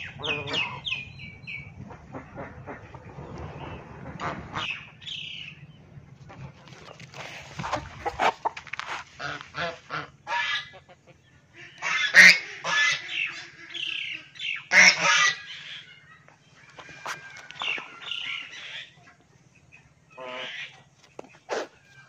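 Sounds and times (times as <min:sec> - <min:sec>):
fowl calling: 0:00.0 - 0:03.4, 0:07.6 - 0:22.0.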